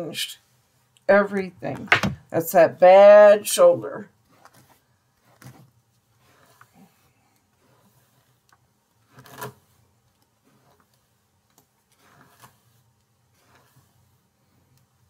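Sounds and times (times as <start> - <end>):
hairbrush strokes through hair: 3.2 - 14.9.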